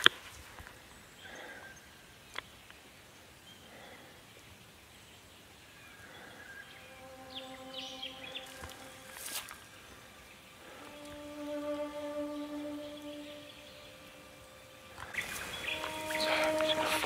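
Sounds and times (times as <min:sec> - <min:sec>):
faint bird chirps: 0:00.9 - 0:17.0
held musical tone: 0:06.7 - 0:09.7, 0:10.6 - 0:17.0
soft rustles: 0:08.4 - 0:09.7.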